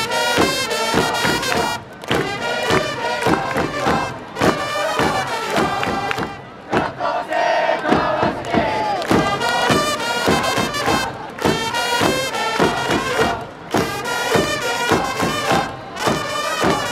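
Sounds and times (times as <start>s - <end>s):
trumpets playing a tune: 0.0s - 6.2s, 9.2s - 16.9s
steady drum beat: 0.0s - 7.0s, 7.8s - 16.9s
crowd voices: 0.0s - 16.9s.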